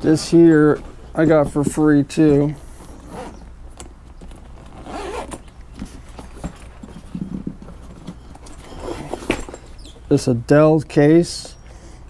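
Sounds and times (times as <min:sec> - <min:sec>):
zipper being pulled open: 0:02.8 - 0:03.5, 0:04.5 - 0:05.5, 0:08.6 - 0:09.4.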